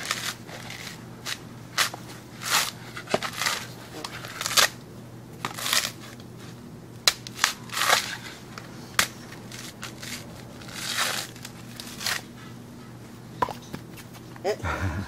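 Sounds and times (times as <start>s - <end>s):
coconut husk cracking and tearing: 0.0s - 4.8s, 5.4s - 6.3s, 7.0s - 12.3s.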